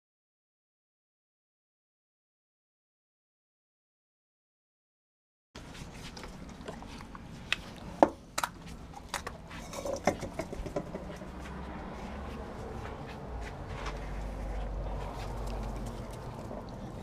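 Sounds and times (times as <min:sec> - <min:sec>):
dogs tearing at chicken: 0:05.6 - 0:09.7, 0:14.8 - 0:17.0
sharp clicks and knocks: 0:08.0 - 0:11.3.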